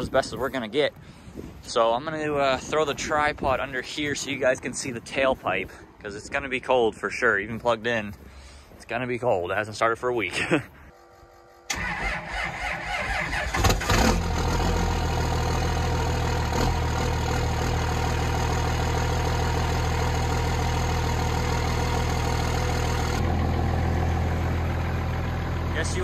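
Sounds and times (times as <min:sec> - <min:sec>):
starter motor cranking: 0:11.7 - 0:14.3
diesel engine idling: 0:11.7 - 0:26.0.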